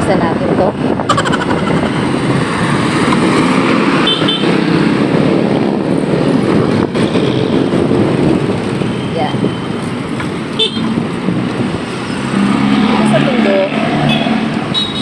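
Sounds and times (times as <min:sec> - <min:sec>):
short high beeps: 0:01.1 - 0:02.1.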